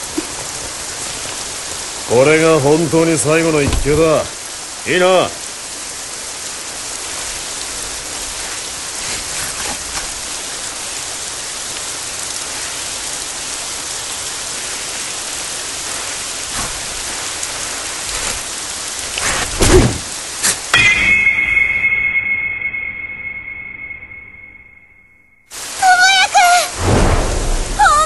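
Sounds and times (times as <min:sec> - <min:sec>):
heavy rain falling: 0:00.0 - 0:21.8, 0:25.5 - 0:28.0
sudden rush of noise: 0:26.7 - 0:27.9.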